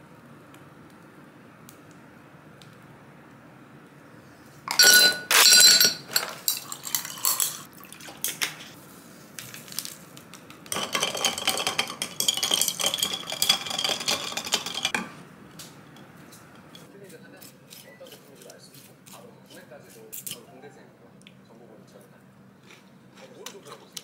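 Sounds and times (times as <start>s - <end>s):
ice clinking in a glass: 4.7s - 7.6s, 10.7s - 15.0s
glasses clinking: 4.7s - 7.7s, 10.7s - 15.1s.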